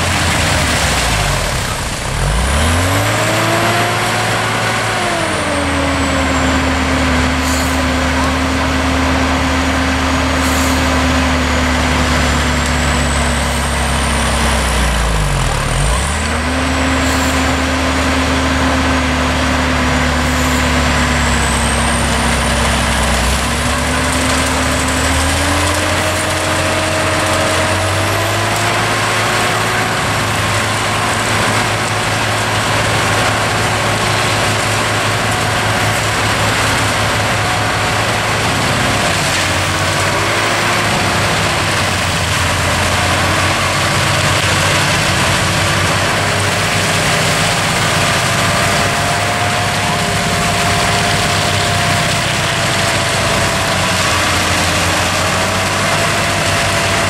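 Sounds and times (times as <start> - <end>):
forestry mulcher shredding trees: 0.0 - 57.0
tractor diesel engine working hard: 0.0 - 57.0.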